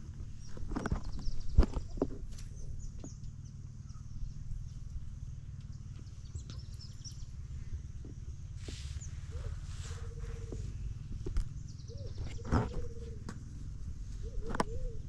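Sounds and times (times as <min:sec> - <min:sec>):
birds chirping: 0:00.0 - 0:15.0
steady low rumble: 0:00.0 - 0:15.0.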